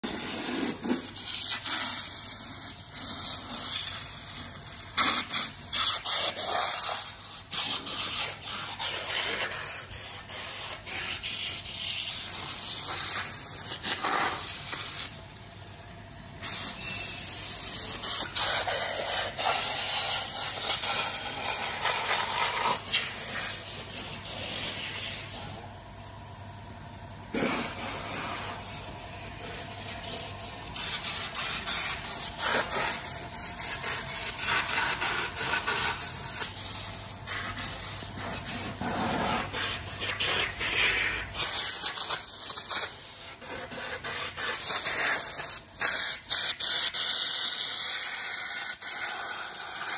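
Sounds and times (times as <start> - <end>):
spray gun hissing: 16.4 - 25.6, 27.3 - 38.6.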